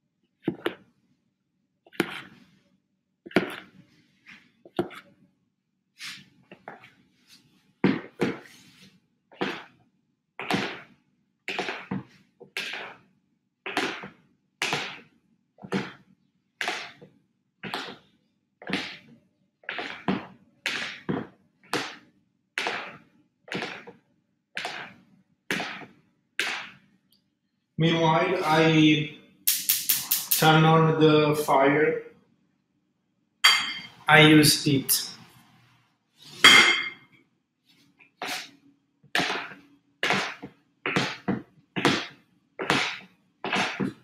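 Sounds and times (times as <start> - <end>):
spoon scraping batter in plastic bowl: 1.9 - 2.5.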